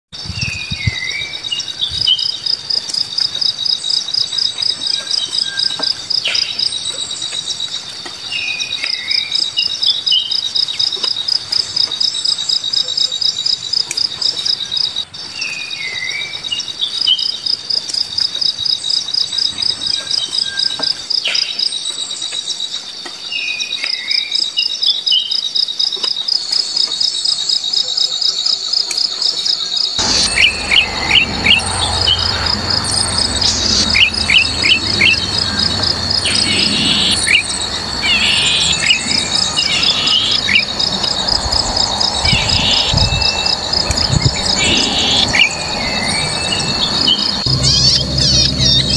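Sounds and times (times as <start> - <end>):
crickets chirping: 0.2 - 48.9.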